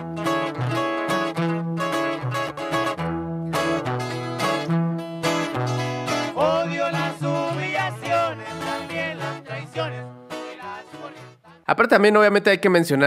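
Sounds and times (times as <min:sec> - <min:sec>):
man singing: 0:06.0 - 0:12.0.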